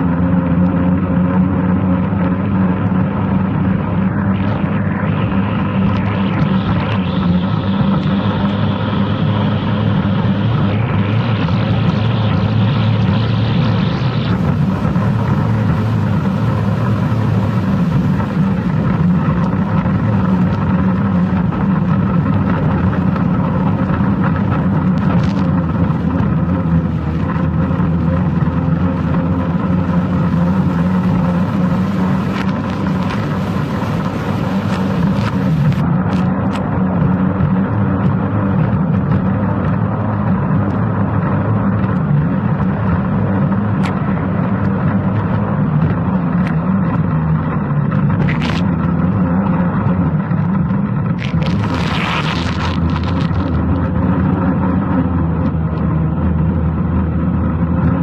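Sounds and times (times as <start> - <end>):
boat engine at high revs: 0.0 - 58.0
wind and spray hiss: 11.3 - 36.3, 51.2 - 53.5.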